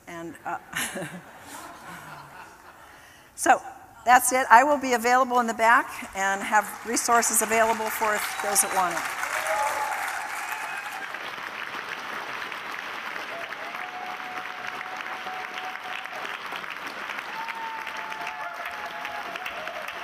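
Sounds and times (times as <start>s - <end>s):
audience applauding: 6.3s - 20.0s.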